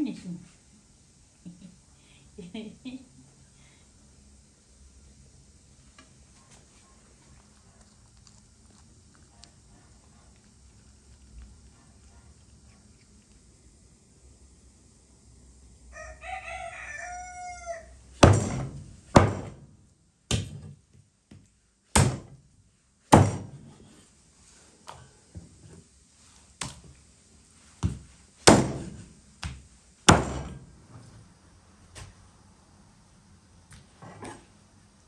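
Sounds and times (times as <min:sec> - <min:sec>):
rooster crowing: 0:15.9 - 0:18.0
cleaver chopping on wooden board: 0:18.2 - 0:19.6, 0:22.0 - 0:22.3, 0:23.1 - 0:23.6, 0:27.8 - 0:30.6.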